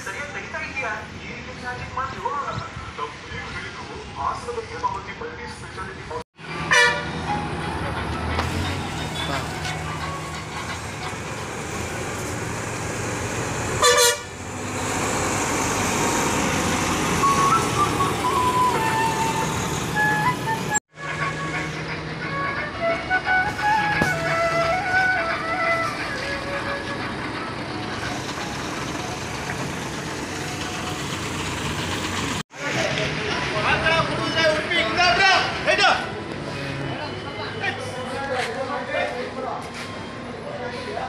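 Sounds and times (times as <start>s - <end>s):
coach diesel engine passing: 6.4s - 38.3s
loud horn blast: 6.6s - 7.2s, 13.8s - 14.4s
bus stand background noise: 23.2s - 41.0s.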